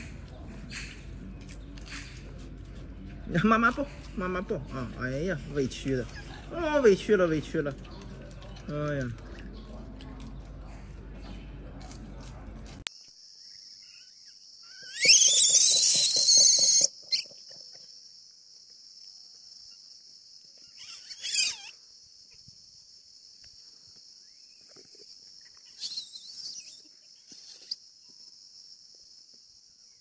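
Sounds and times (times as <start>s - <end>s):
insects droning: 0.0s - 30.0s
monkey screaming: 13.8s - 17.2s, 20.7s - 21.8s, 25.7s - 26.8s.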